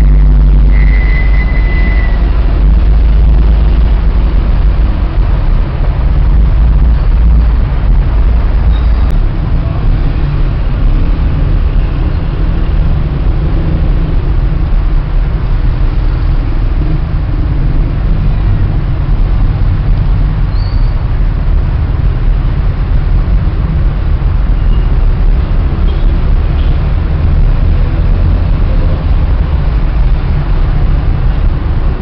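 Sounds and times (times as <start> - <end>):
low outdoor rumble: 0.0 - 32.0
faint high chirp: 20.5 - 20.9.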